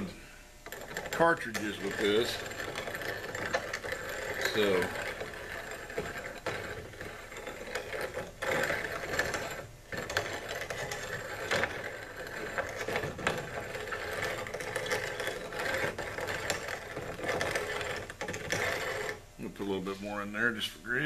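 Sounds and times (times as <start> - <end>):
grinder rattling and clicking: 0.0 - 19.2.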